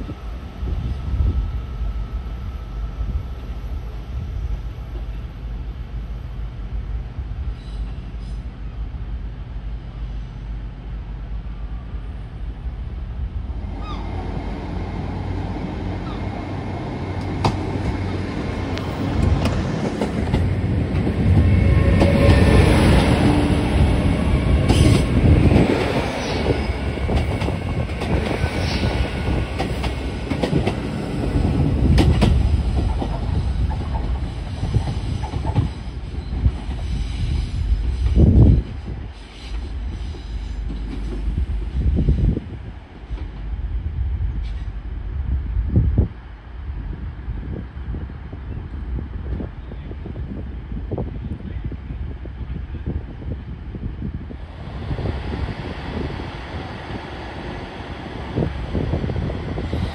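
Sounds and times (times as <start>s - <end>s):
diesel train rumbling: 0.0s - 59.9s.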